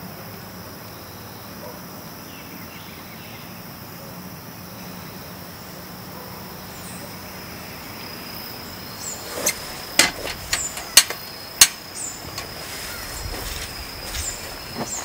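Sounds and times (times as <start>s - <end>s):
thin insect drone: 0.0s - 15.0s
rain hissing: 8.7s - 15.0s
sharp knocks: 9.4s - 12.6s.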